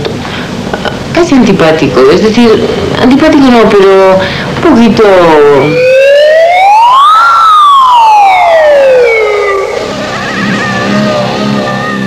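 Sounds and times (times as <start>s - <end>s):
siren wailing: 5.4s - 12.0s.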